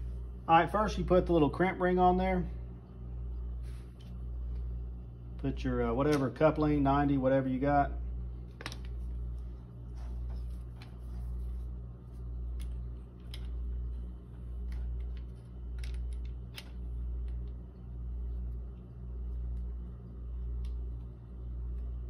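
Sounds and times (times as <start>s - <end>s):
pulsing low hum: 0.0s - 1.4s, 7.8s - 22.0s.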